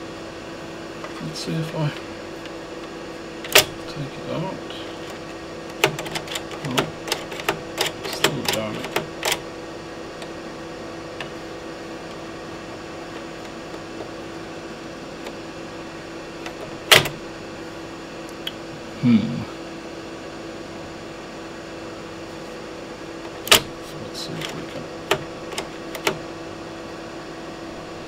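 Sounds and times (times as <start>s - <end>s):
electronic equipment hum: 0.0s - 28.0s
floppy drive mechanical click: 1.0s - 10.4s, 11.1s - 14.4s, 15.1s - 15.5s, 16.3s - 17.3s, 23.2s - 26.3s.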